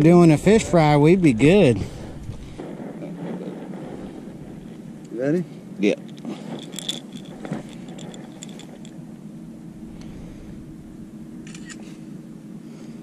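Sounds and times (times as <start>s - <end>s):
steady low hum: 0.0s - 13.0s
fishing hook clicks and rattles: 6.0s - 9.0s.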